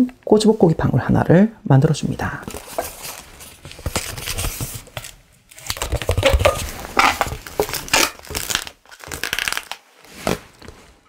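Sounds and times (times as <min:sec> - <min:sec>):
balloon squeaking and rubbing: 0:05.7 - 0:10.9.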